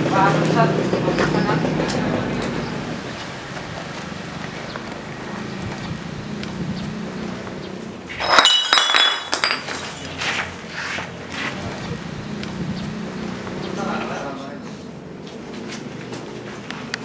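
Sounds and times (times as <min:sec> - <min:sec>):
glass bottles clinking on tiles: 0:08.1 - 0:10.3.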